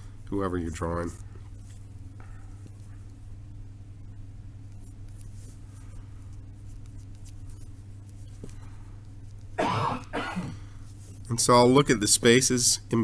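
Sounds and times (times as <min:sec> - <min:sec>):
low steady hum: 0:00.0 - 0:13.0
pen scratching on card: 0:06.3 - 0:08.5.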